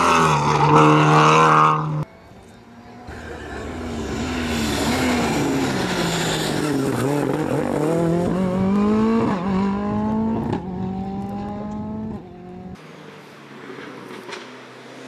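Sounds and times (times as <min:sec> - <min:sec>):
distant car engine: 0:00.0 - 0:15.0
rally car engine accelerating: 0:02.8 - 0:12.8.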